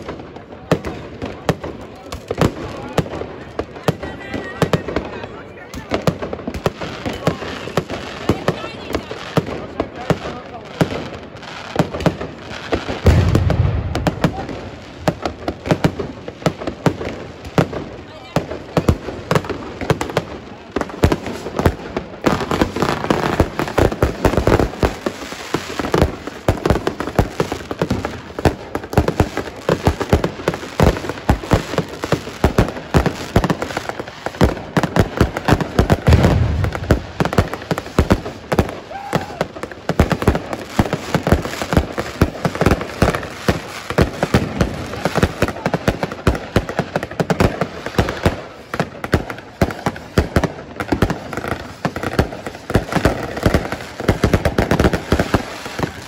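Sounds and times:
fireworks bursting and crackling: 0.0 - 56.0
deep firework boom: 13.0 - 15.4, 36.0 - 38.1.

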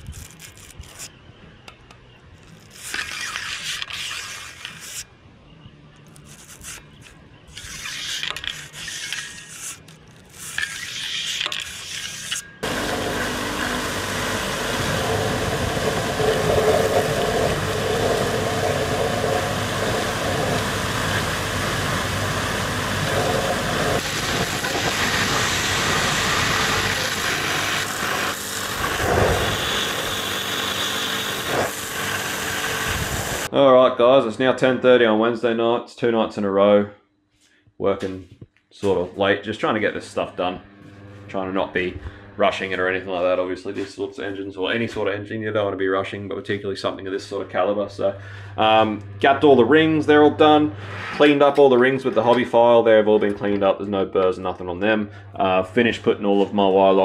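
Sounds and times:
electric filer grinding: 6.0 - 33.5
loud steady rushing noise: 12.6 - 33.5.

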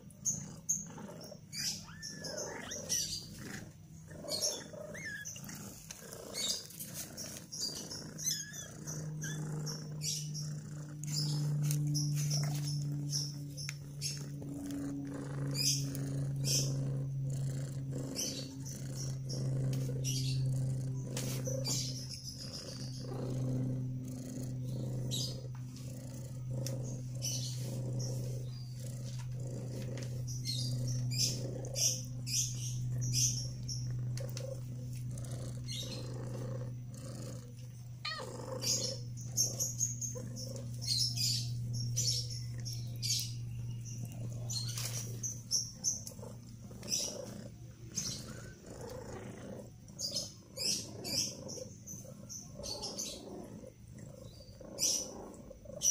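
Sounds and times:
kittens squeaking: 0.0 - 23.5, 38.0 - 49.2
cat purring: 0.0 - 55.9.

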